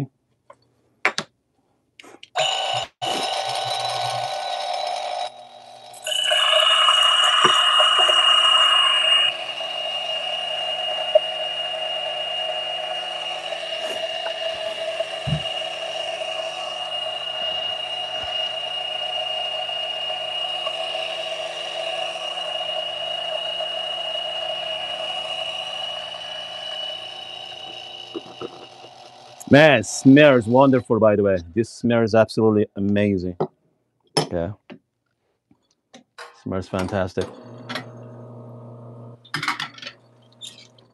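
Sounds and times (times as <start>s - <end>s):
coffee grinder motor whine: 2.4s - 30.7s, 37.2s - 40.9s.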